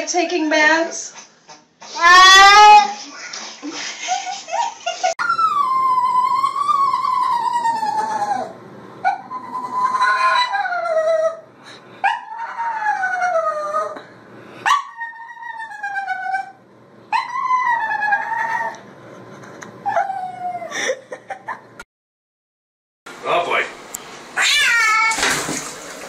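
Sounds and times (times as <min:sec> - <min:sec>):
dog yelping: 0:05.2 - 0:11.4, 0:12.0 - 0:14.0, 0:14.6 - 0:18.8
dog howling: 0:05.2 - 0:14.0, 0:14.7 - 0:18.8, 0:19.8 - 0:20.7.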